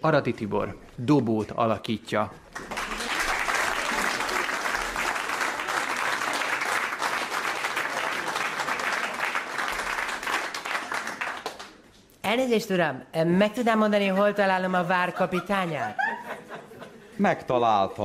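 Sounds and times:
audience applauding: 0:02.5 - 0:11.8.

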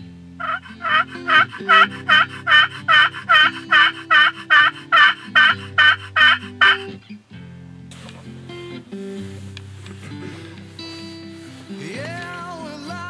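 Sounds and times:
turkey call yelps: 0:00.4 - 0:06.9.

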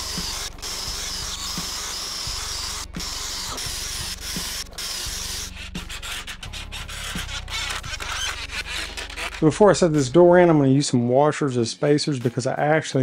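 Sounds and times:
cordless drill whining: 0:00.0 - 0:10.1.

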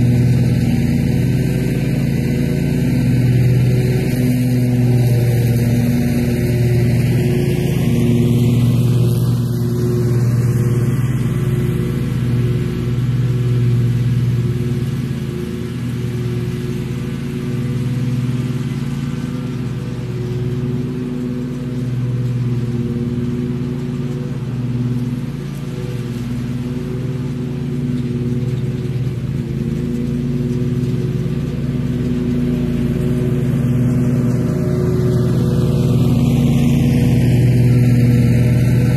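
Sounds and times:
mower engine running: 0:00.0 - 0:38.9.

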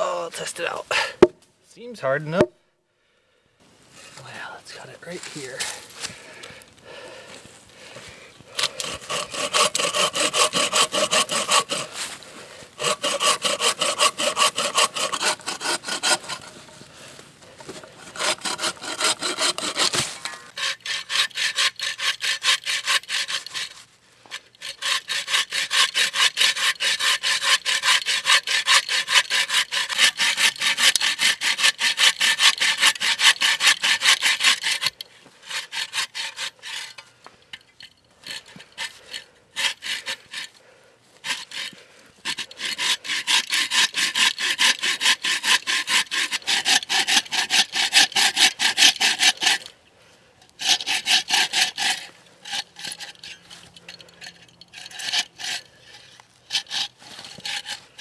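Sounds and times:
bow saw cutting log: 0:08.5 - 0:12.2, 0:12.8 - 0:16.8, 0:17.6 - 0:37.0, 0:38.2 - 0:40.6, 0:41.2 - 0:49.8, 0:50.5 - 0:53.7, 0:54.7 - 0:58.0.

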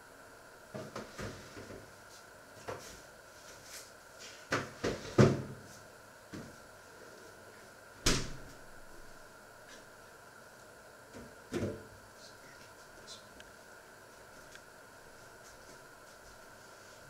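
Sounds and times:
kitchen knocks and clunks: 0:04.5 - 0:05.6.

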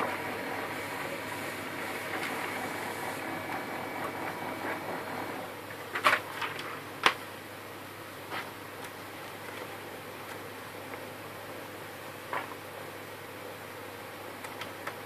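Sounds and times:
laser printer whirring: 0:00.0 - 0:05.8.

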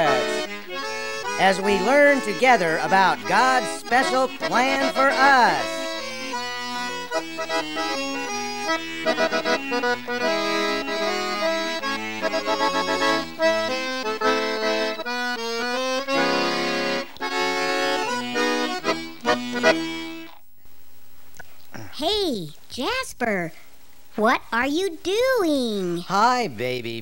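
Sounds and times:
instrumental theme music: 0:00.0 - 0:20.4.

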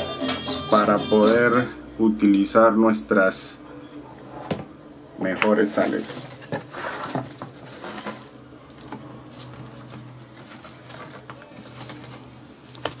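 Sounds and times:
scraping rustles: 0:05.8 - 0:08.4, 0:09.4 - 0:12.4.

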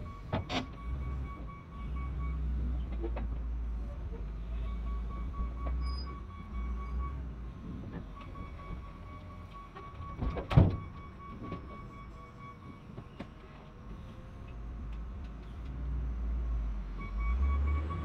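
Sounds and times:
loader engine running low: 0:00.0 - 0:18.0.

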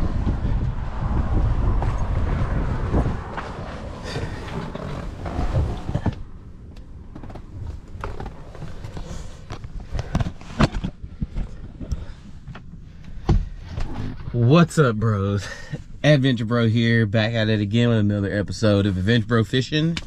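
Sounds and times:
wind buffeting microphone: 0:00.0 - 0:06.4.

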